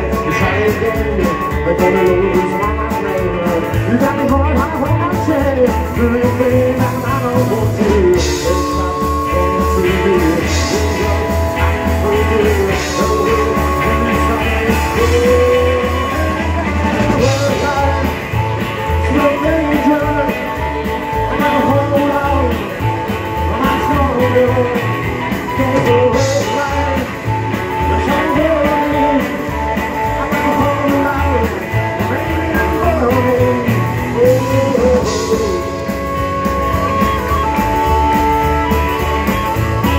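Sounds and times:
harmonica: 0:00.0 - 0:39.9
rock and roll band playing: 0:00.0 - 0:39.9.

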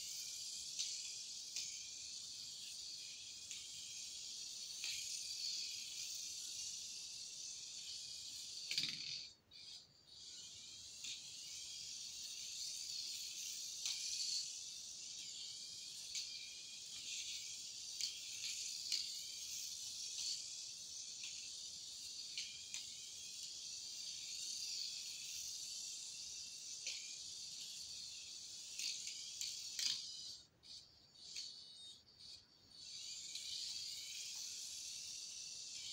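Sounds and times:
toy car motor whirring: 0:00.0 - 0:35.9.

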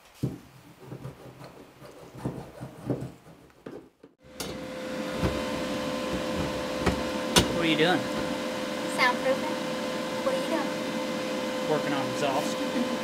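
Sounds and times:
knocks and rubbing: 0:00.0 - 0:08.4
steady hum with high tone: 0:04.2 - 0:13.0.

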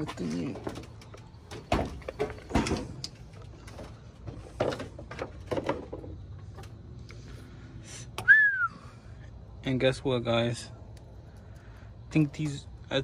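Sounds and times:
car battery knocking and clunking: 0:00.0 - 0:06.6.

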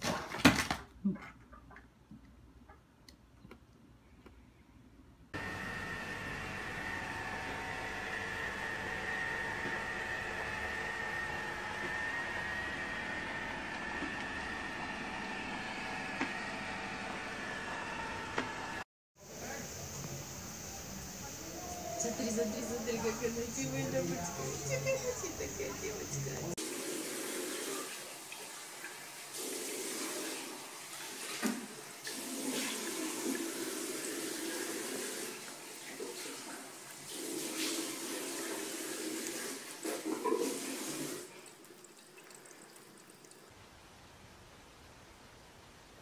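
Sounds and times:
robot vacuum whirring: 0:21.3 - 0:26.6
tap water running into sink: 0:26.6 - 0:43.5.

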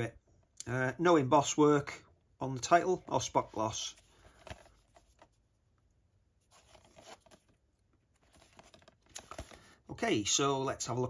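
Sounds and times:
plastic case handling clicks and rubs: 0:08.2 - 0:09.7.

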